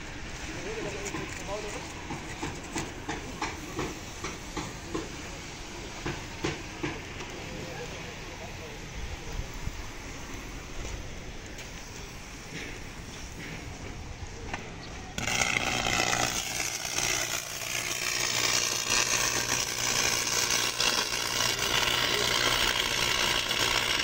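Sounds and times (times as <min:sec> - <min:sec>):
electric arc welding crackling: 0:15.0 - 0:24.0.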